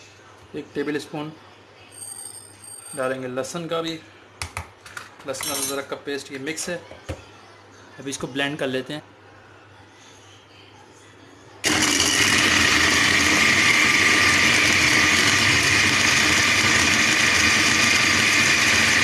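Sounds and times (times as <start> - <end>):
food chopper motor whine: 11.6 - 19.0.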